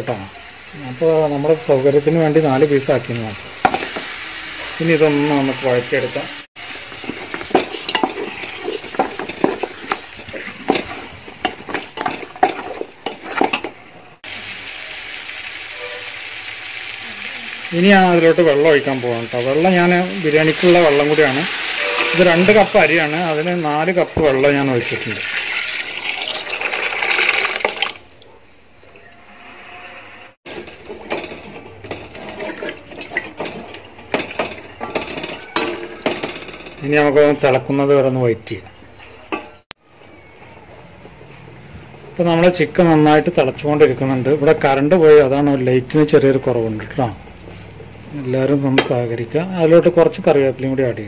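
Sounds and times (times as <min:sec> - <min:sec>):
spatula scraping a metal pot: 0:06.7 - 0:13.8, 0:29.1 - 0:37.5.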